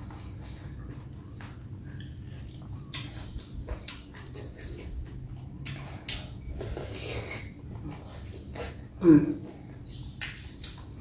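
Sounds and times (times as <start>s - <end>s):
person chewing noodles: 0.0s - 11.0s
steady low hum: 0.0s - 11.0s
wet mouth clicks and smacks: 1.4s - 7.5s, 10.1s - 11.0s.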